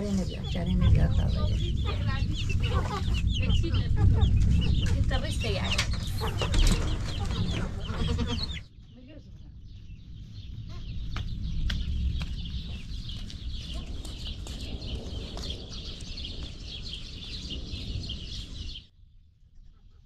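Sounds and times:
low rumble: 0.0 - 20.0
small birds chirping: 0.0 - 20.0
footsteps on concrete: 11.2 - 15.6.

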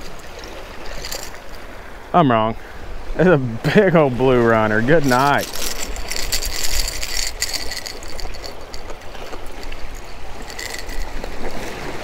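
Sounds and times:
surf washing against rocks: 0.0 - 12.0
fishing lure clicking and rattling: 0.1 - 1.7, 5.0 - 11.7
wind rumbling on microphone: 4.1 - 12.0.

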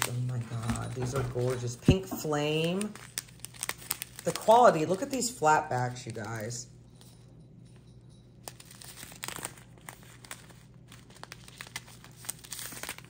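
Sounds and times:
plastic pouches crinkling: 0.0 - 6.7, 8.4 - 13.0.

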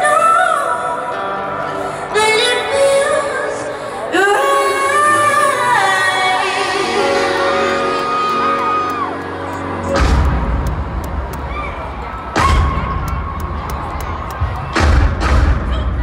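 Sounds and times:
woman singing into microphone: 0.0 - 8.4
sustained backing music: 0.0 - 16.0.

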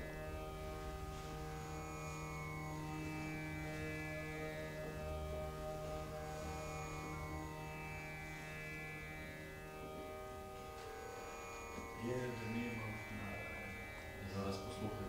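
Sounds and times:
drone of held tones: 0.0 - 15.0
man chanting: 12.0 - 15.0.

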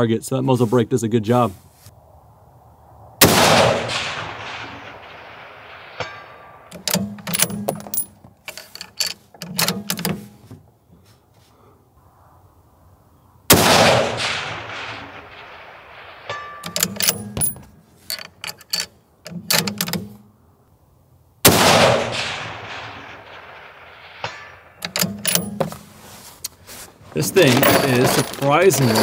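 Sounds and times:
rifle shots with echo: 3.2 - 7.6, 13.5 - 17.6, 21.4 - 25.6
rifle bolt metallic clicks: 6.0 - 10.3, 16.6 - 20.3, 24.2 - 25.9.

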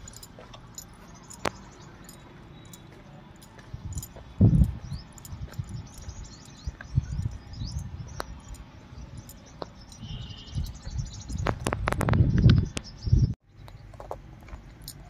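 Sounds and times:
wind buffeting microphone: 3.6 - 13.4.

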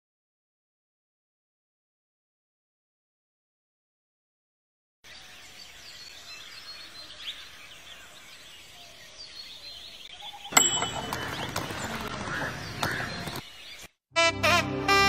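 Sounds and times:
birds chirping: 5.0 - 14.0.

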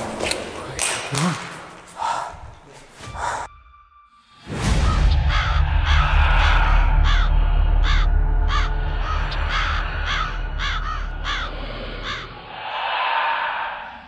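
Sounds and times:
crow cawing: 4.8 - 14.0
low drone: 5.1 - 14.0.

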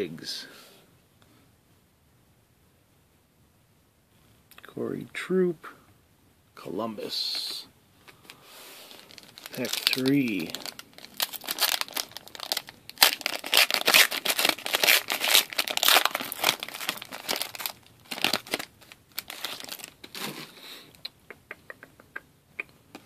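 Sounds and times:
foil wrapper crinkling and tearing: 8.9 - 20.4.

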